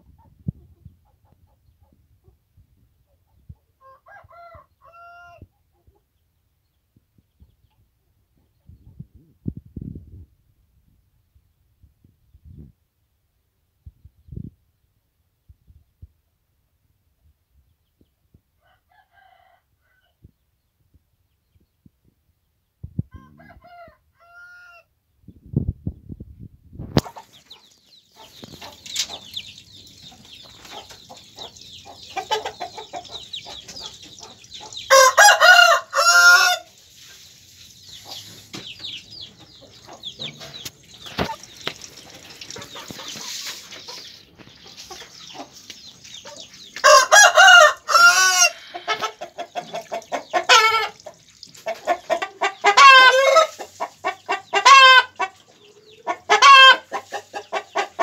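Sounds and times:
chickens clucking loudly: 0.0 - 2.5, 25.4 - 58.0
rooster crowing: 3.8 - 5.4, 23.1 - 24.9, 34.9 - 36.7, 46.8 - 49.0.

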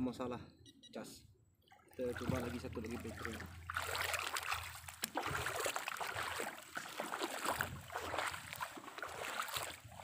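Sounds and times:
footsteps splashing through water: 1.7 - 10.0.

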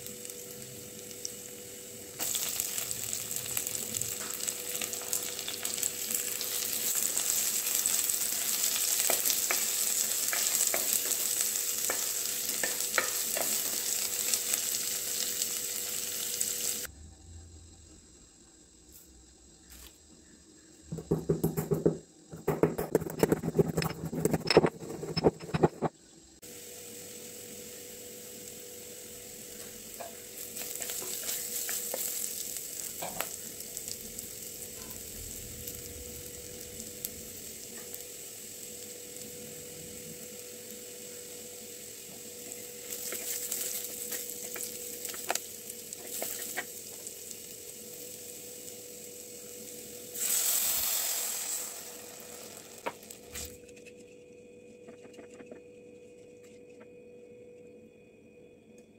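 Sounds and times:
onions sizzling in oil: 0.0 - 16.9, 26.4 - 53.6
pestle pounding in stone mortar: 20.9 - 25.9
stirring strokes: 22.5 - 25.9.

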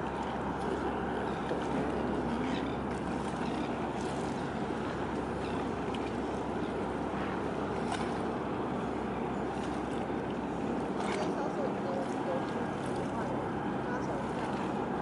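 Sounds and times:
ship engine rumble: 0.0 - 15.0
water noise: 0.0 - 15.0
wind: 0.0 - 15.0.

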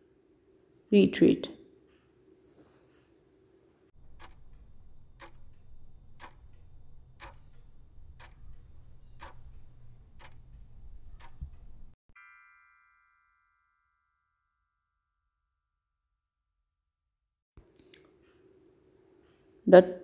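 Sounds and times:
clock ticking: 4.0 - 12.0
ringing chime: 12.1 - 15.3.

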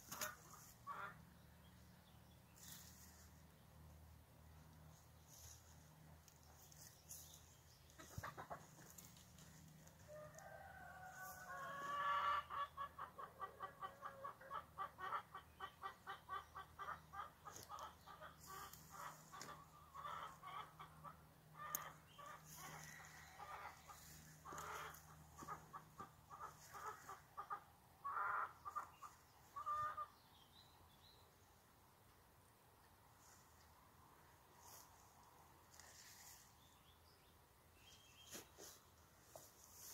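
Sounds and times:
chickens clucking: 0.0 - 1.8, 4.5 - 10.0, 11.4 - 30.3.

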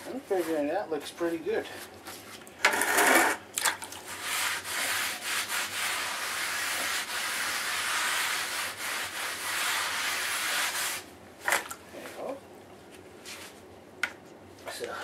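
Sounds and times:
rag scrubbing wet mortar: 2.8 - 11.0.

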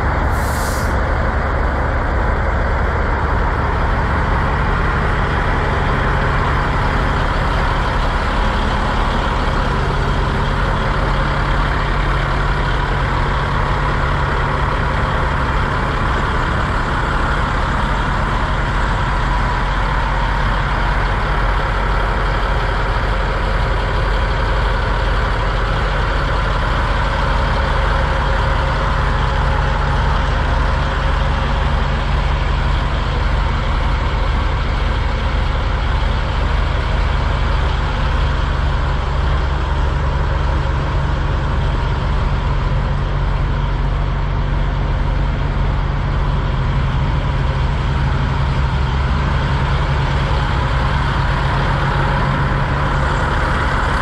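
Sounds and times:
diesel truck engine idling: 0.0 - 54.0.

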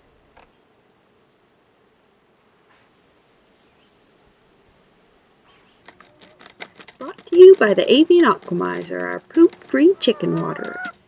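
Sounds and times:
bees buzzing: 5.8 - 11.0.

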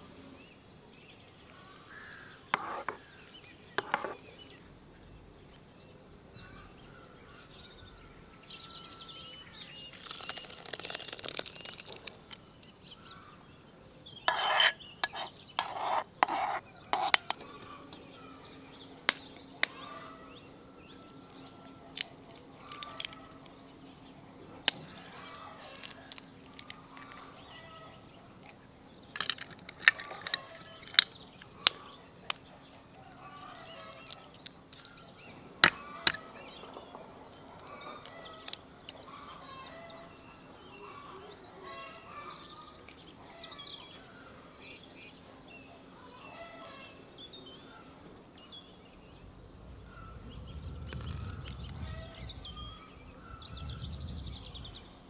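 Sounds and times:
small birds chirping: 0.0 - 55.0
dough scraping and slopping: 14.3 - 17.4.

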